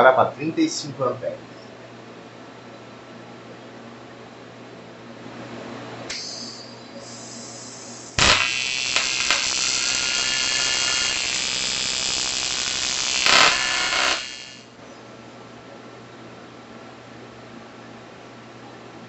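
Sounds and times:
welding arc buzzing: 6.1 - 14.7.

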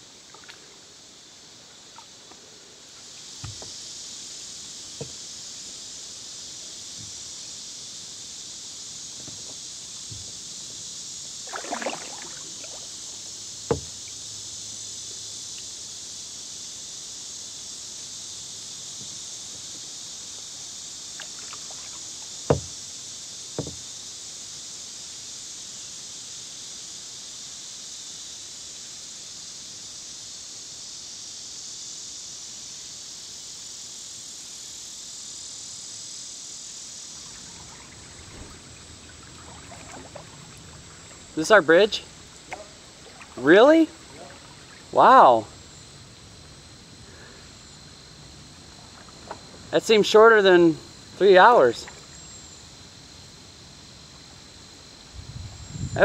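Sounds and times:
steady high-pitched hiss: 0.0 - 56.0
kayak paddle knocking against hull: 3.4 - 3.8, 4.9 - 5.2, 9.2 - 10.5, 13.7 - 14.1, 22.5 - 22.8, 23.6 - 23.8, 37.4 - 41.3, 42.4 - 43.4
water dripping splash: 11.5 - 13.0, 37.2 - 41.4, 42.4 - 44.9.

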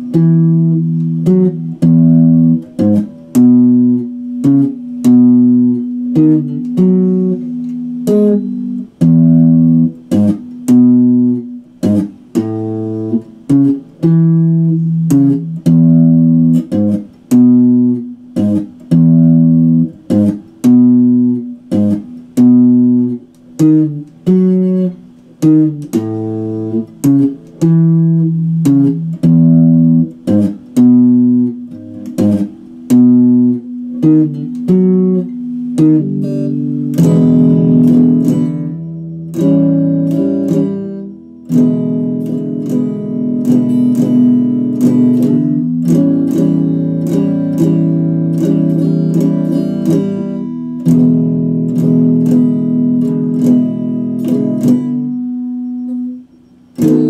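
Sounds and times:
electric guitar riff: 0.0 - 57.0.

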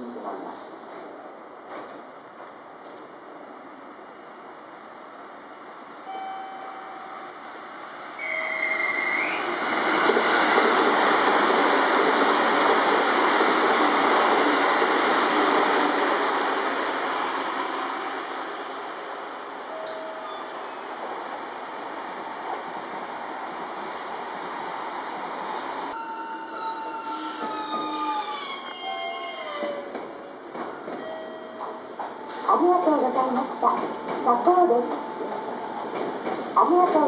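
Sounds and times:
high whistle-like tone: 8.2 - 9.5
train wheels rumbling on rails: 8.7 - 18.7, 27.1 - 37.0.

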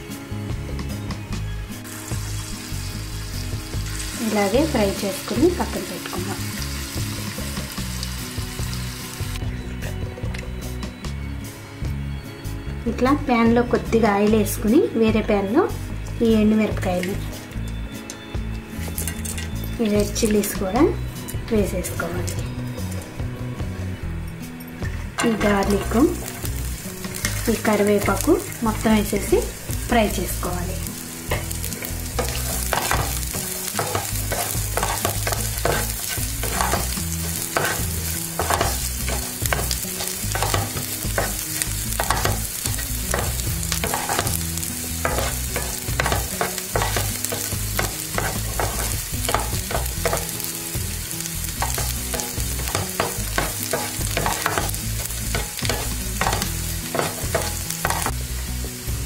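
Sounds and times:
food sizzling in hot oil: 1.3 - 9.5, 25.2 - 59.0.

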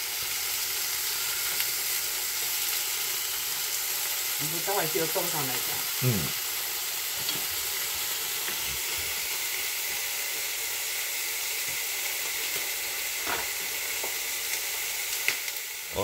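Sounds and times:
meat sizzling in a pan: 0.0 - 16.0.

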